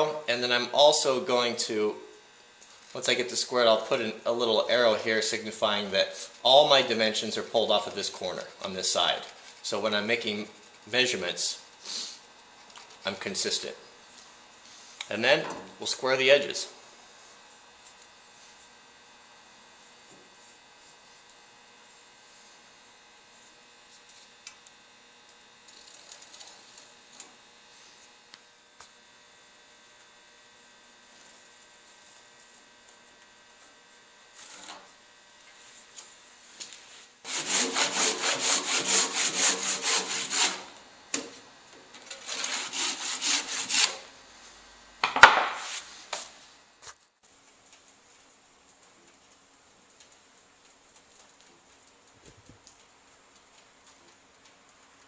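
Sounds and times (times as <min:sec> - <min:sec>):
hand tool rasping timber: 0:37.2 - 0:40.7, 0:42.2 - 0:44.0.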